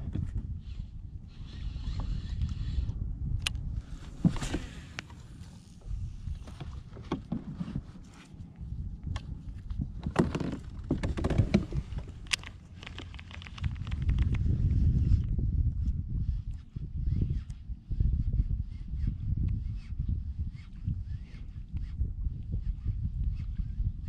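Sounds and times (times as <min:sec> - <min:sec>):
water and wind rumble: 0:00.0 - 0:24.0
fishing reel clicks and knocks: 0:10.3 - 0:14.4.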